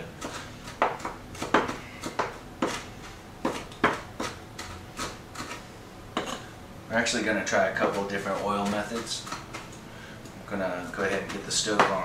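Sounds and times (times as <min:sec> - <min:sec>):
knife chopping on wooden board: 0:00.1 - 0:05.6, 0:07.7 - 0:09.7, 0:11.0 - 0:12.0.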